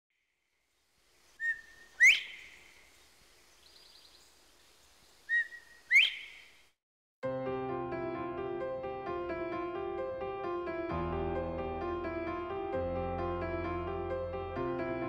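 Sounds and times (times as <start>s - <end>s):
faint high bird twitter: 1.2s - 6.7s
quail whistling two-note call: 1.4s - 2.5s, 5.3s - 6.4s.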